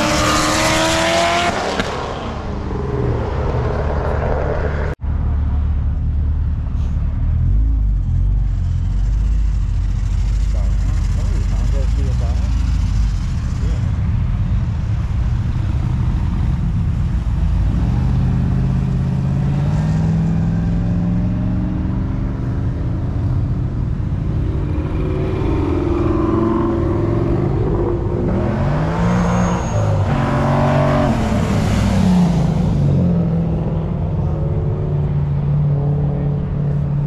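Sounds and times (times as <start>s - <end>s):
car engine revving hard: 0.0s - 2.0s
cars accelerating and passing: 0.0s - 37.0s.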